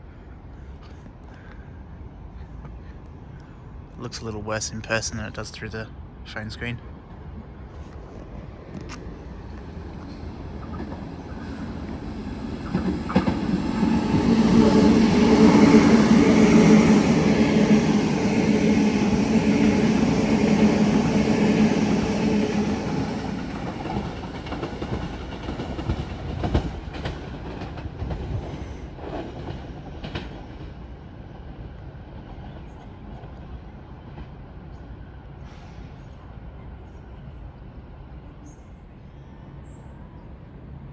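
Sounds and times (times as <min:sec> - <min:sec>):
electric train passing: 0:04.1 - 0:36.8
wheels clacking over rail joints: 0:08.6 - 0:17.2, 0:22.8 - 0:30.8.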